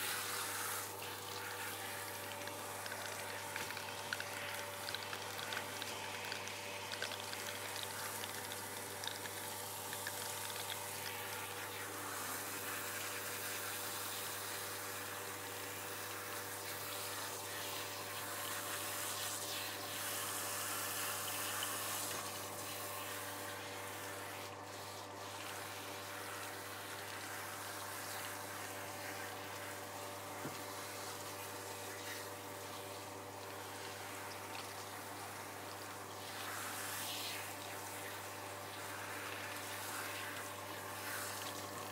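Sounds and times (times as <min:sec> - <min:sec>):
shower head spraying water: 0:00.0 - 0:22.9.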